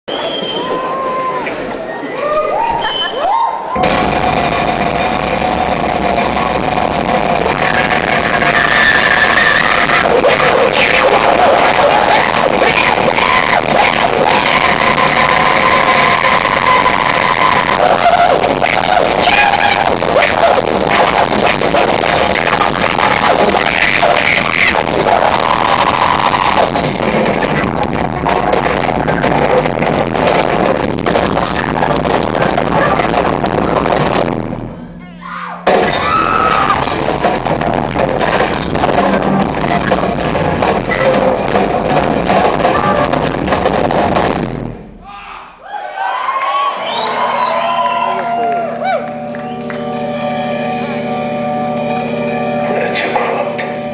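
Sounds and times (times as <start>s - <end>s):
band playing loud music: 3.8s - 45.0s, 47.4s - 53.9s
voice over music: 50.7s - 53.9s.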